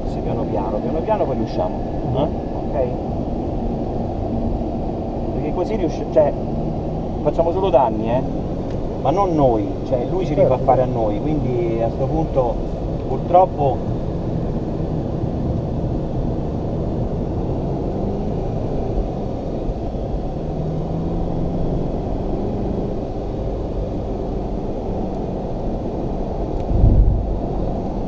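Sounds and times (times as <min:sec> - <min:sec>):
car engine and tyre noise: 0:00.0 - 0:28.0
low rumble: 0:26.4 - 0:28.0.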